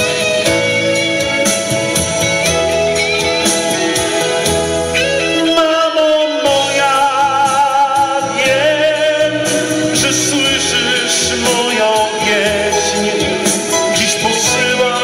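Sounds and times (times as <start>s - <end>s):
backing track: 0.0s - 15.0s
man singing into microphone: 5.0s - 15.0s.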